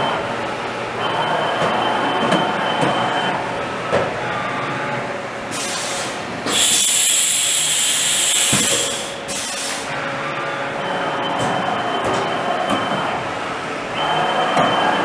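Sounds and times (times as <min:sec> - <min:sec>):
machine humming: 0:00.0 - 0:15.0
air hissing with whistle: 0:05.6 - 0:09.9.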